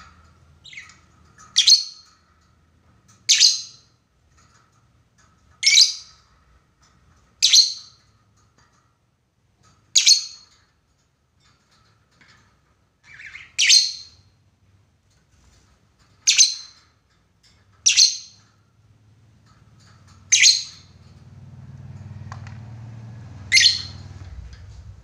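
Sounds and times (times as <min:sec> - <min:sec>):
high-pitched bird calls: 0:00.6 - 0:02.1, 0:20.3 - 0:21.0, 0:23.5 - 0:24.2.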